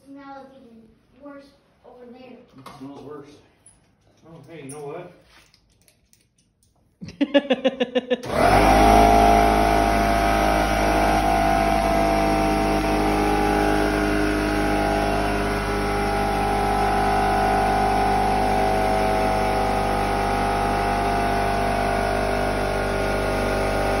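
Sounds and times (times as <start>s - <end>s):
electric motor humming with whine: 8.3s - 24.0s.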